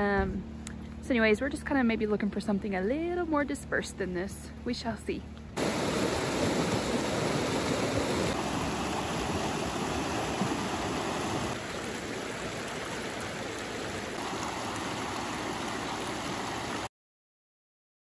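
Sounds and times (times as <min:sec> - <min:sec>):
creek rushing over rocks: 0:05.6 - 0:16.9.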